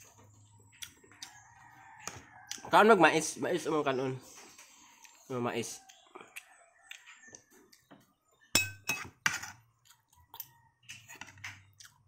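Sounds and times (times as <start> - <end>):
metal spoon clinking on plate: 8.6 - 9.5.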